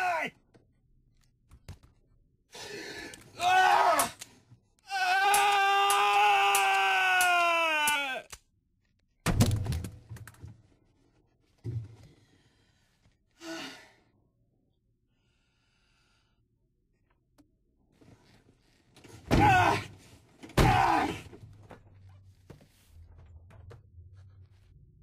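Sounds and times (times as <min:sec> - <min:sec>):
man screaming: 0:04.9 - 0:08.2.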